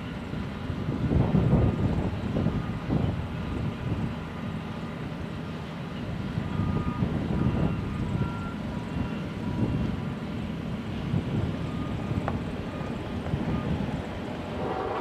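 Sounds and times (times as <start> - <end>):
heavy equipment engines rumbling: 0.0 - 15.0.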